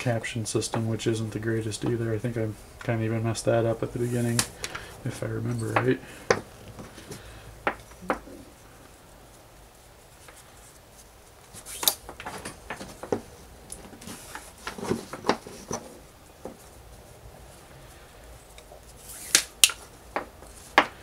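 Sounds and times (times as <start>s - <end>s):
cord rubbing and pulled tight: 10.2s - 16.7s, 18.4s - 20.8s.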